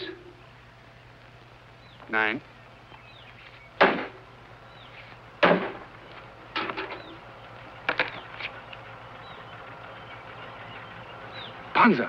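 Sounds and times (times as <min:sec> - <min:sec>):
faint bird chirps: 0:01.7 - 0:03.8, 0:04.6 - 0:05.3, 0:06.8 - 0:12.0.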